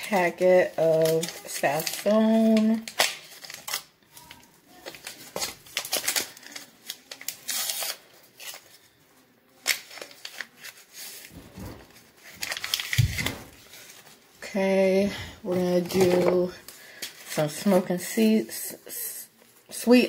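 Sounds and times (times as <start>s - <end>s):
foil packet crinkling and tearing: 0.0s - 14.2s.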